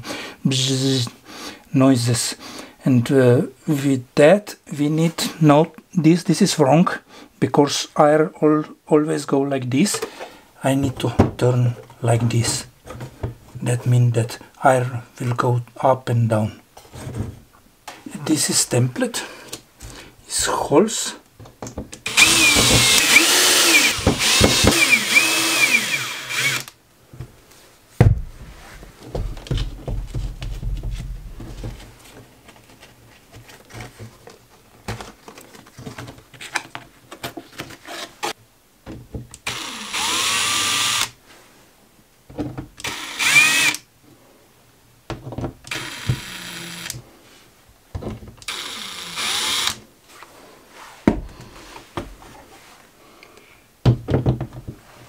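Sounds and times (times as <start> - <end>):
cordless drill boring into wall: 22.0 - 26.8, 39.4 - 41.2, 42.8 - 43.8, 45.7 - 47.0, 48.4 - 49.8.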